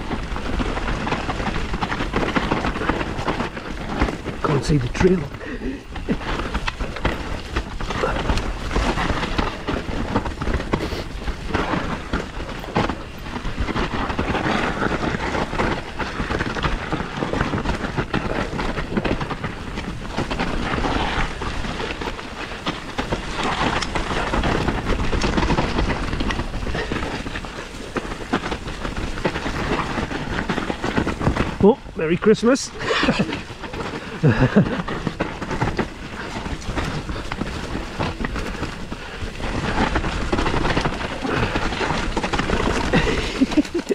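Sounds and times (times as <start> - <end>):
bike rattling and knocking: 0.0 - 43.9
bike tyres rumbling over dirt: 0.0 - 43.9
wind buffeting microphone: 0.0 - 43.9.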